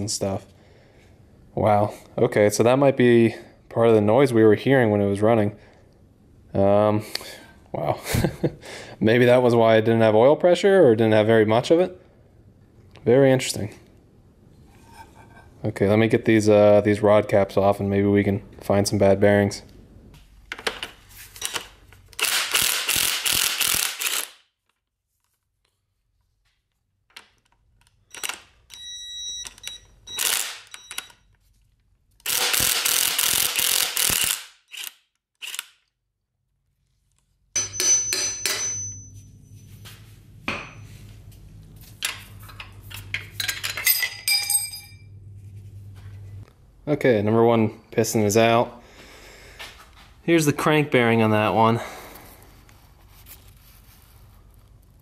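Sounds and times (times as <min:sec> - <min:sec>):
socket ratchet clicking: 0:27.8 - 0:31.2, 0:32.2 - 0:35.8
metallic clinks and pings: 0:37.6 - 0:39.8, 0:43.8 - 0:45.1.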